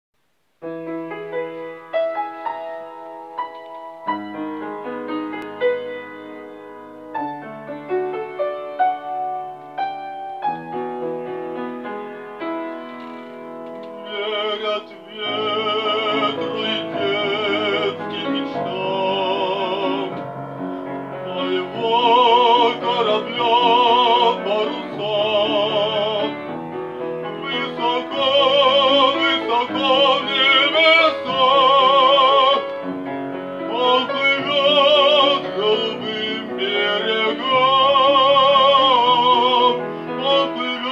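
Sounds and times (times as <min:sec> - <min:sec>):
grand piano playing: 0:00.6 - 0:40.9
male classical singer: 0:13.8 - 0:40.9.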